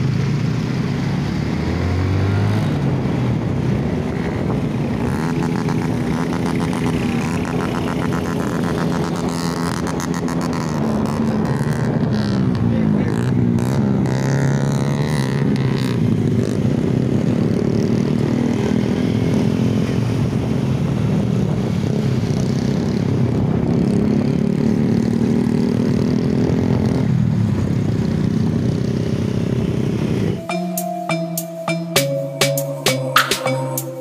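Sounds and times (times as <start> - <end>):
small motorcycles droning: 0.0 - 34.0
music: 30.4 - 34.0.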